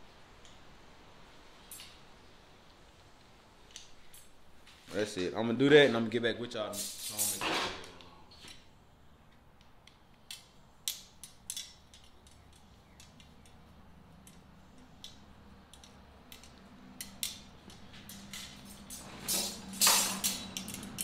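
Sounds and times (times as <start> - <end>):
metal rods clicking: 14.2 - 21.0.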